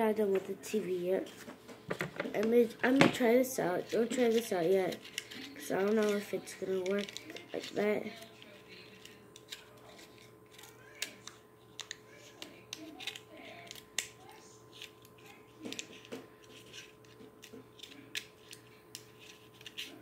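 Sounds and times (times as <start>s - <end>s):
scissors snipping card: 3.9s - 9.9s, 10.5s - 20.0s.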